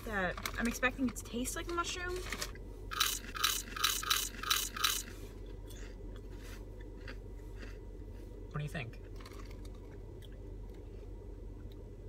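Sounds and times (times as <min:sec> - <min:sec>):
person chewing: 0:03.0 - 0:08.4, 0:09.0 - 0:11.8
potato chips crunching: 0:09.0 - 0:11.0.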